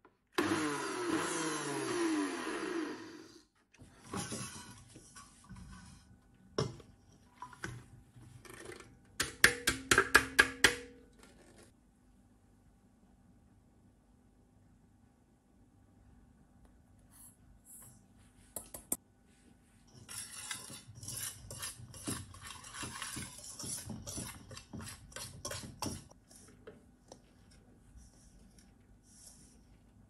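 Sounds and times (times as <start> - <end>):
whisk scraping metal bowl: 4.0 - 6.1, 19.8 - 29.8.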